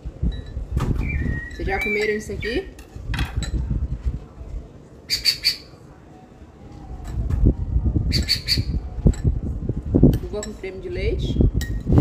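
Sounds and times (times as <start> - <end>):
low rumbling microphone noise: 0.0 - 5.0, 5.9 - 12.0
bird chirping: 1.0 - 2.7.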